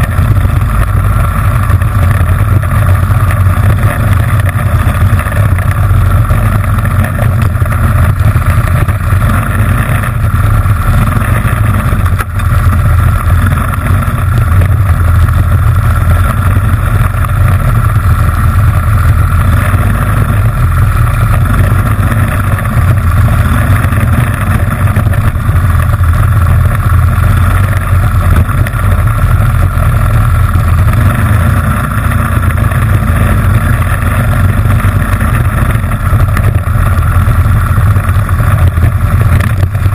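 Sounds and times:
kart engine running hard: 0:00.0 - 0:39.9.

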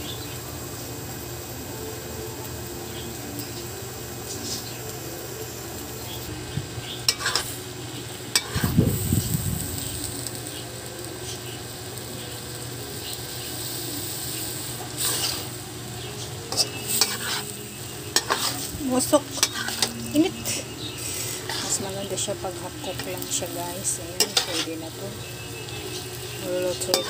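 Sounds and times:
vegetables sizzling in a wok: 0:00.0 - 0:27.0
spatula scraping a pan: 0:07.0 - 0:07.6, 0:08.3 - 0:08.8, 0:14.3 - 0:15.6, 0:16.2 - 0:25.0, 0:25.8 - 0:27.0.

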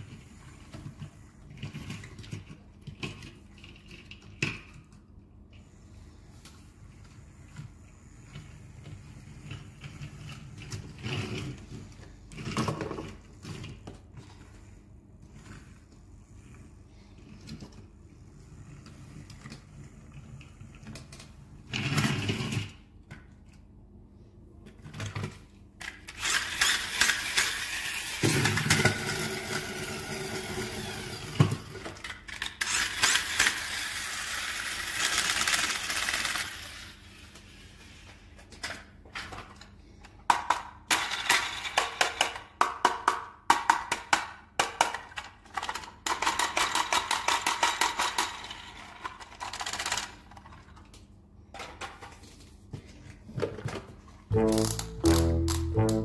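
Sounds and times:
plastic toy vehicles rattling: 0:00.0 - 0:05.0, 0:24.8 - 0:52.4.

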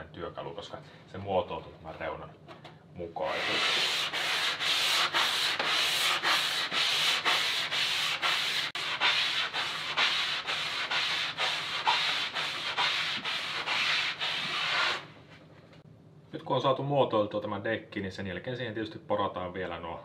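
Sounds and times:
sanding sponge rasping on wood: 0:03.3 - 0:15.1.

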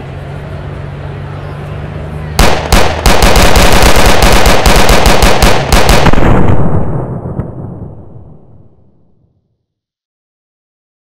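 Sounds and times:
rapid handgun shots: 0:02.4 - 0:06.8.

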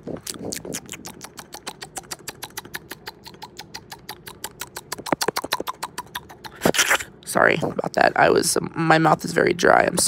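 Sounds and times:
dry mouth clicks: 0:00.0 - 0:07.1.

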